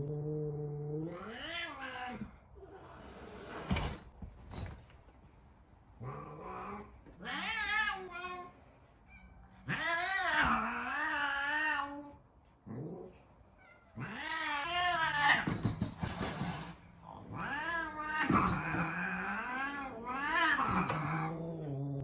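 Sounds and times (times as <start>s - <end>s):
cat hissing: 1.2s - 4.1s, 13.9s - 21.3s
cat yowling: 9.1s - 12.1s, 13.6s - 15.5s, 17.2s - 21.4s.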